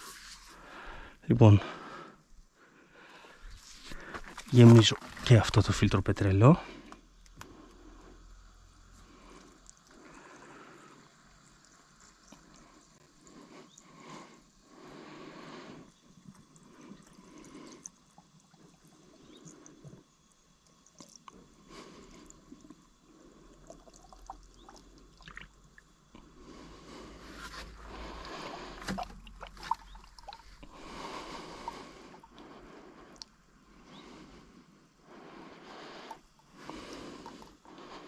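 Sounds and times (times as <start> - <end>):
fuel pouring and trickling: 3.1 - 33.3, 35.2 - 38.0
small clicks: 6.9 - 7.8.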